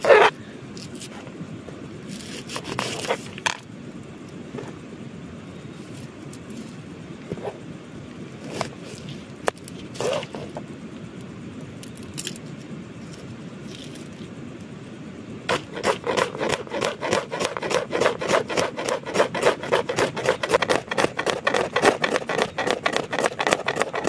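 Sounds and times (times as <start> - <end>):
steady background noise: 0.0 - 24.0
knife cutting onion on board: 15.5 - 24.0.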